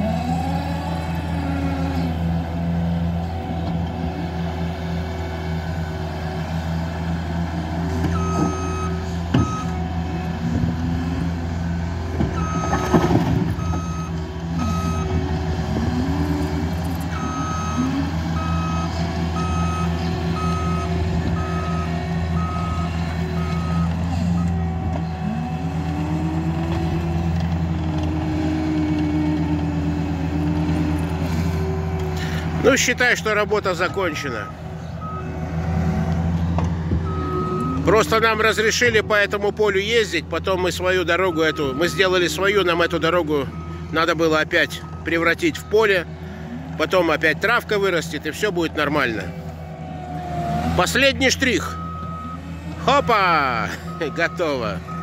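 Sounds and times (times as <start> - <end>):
diesel engine running: 0.0 - 55.0
back-up alarm beeping: 13.6 - 15.2, 17.1 - 24.7, 37.1 - 38.1, 51.3 - 55.0.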